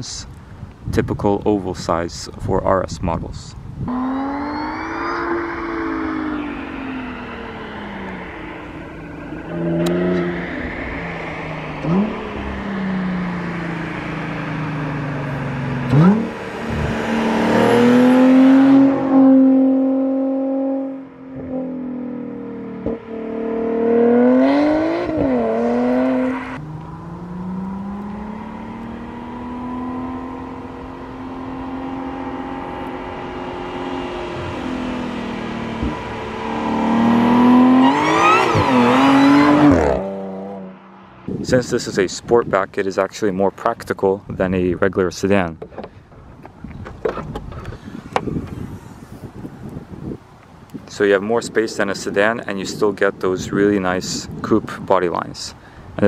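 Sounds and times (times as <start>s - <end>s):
car engine revving: 3.9s - 41.9s.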